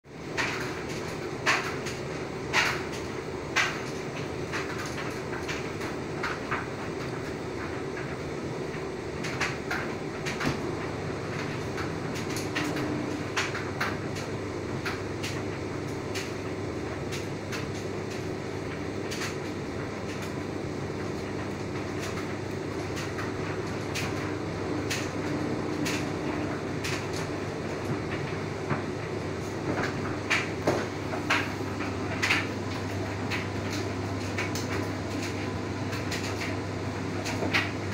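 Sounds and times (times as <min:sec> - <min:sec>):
washing machine motor hum: 0:00.0 - 0:37.9
laundry churning through water: 0:00.1 - 0:37.9.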